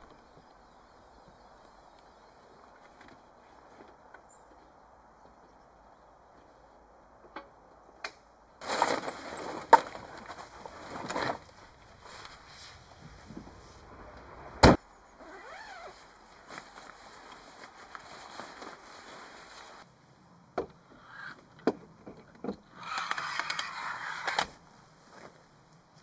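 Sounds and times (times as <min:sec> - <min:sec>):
nylon bag rustling: 0:08.6 - 0:14.0, 0:15.2 - 0:19.8
rustling and scraping: 0:08.6 - 0:14.4, 0:15.2 - 0:19.9.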